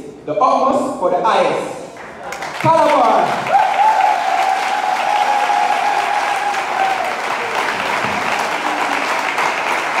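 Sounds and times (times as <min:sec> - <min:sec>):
audience clapping: 0:02.0 - 0:10.0
person cheering: 0:03.4 - 0:07.6.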